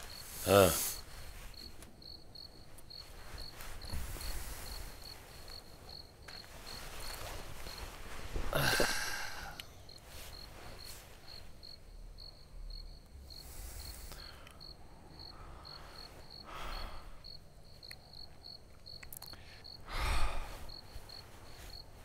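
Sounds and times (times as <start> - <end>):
crickets chirping: 0.0 - 22.0
soft noises: 0.0 - 22.0.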